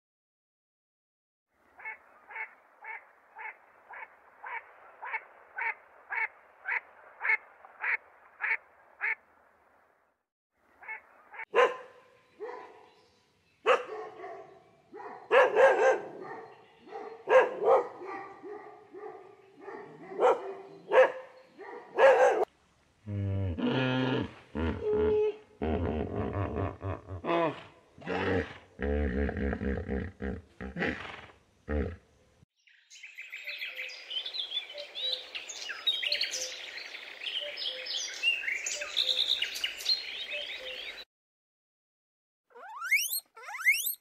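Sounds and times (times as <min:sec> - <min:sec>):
dog barking: 0:11.2 - 0:13.0, 0:13.6 - 0:22.5
short identical calls: 0:42.5 - 0:44.0.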